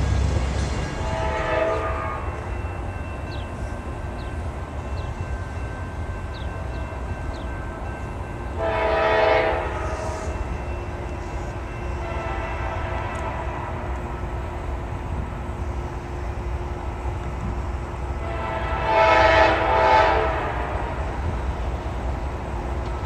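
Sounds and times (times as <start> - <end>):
low train rumble: 0.0 - 23.0
locomotive air horn blasts: 1.0 - 2.4, 8.6 - 10.5, 12.0 - 13.9, 18.2 - 21.0.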